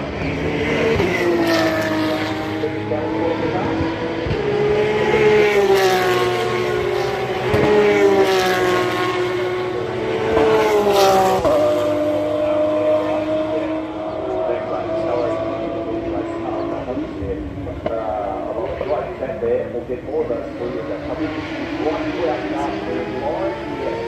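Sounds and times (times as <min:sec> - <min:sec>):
distant race car engines: 0:00.0 - 0:24.0.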